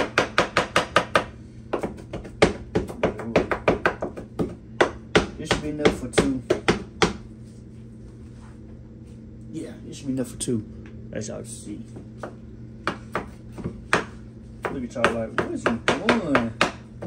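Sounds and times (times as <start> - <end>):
knife chopping on wooden board: 0.0 - 7.2, 12.2 - 16.9.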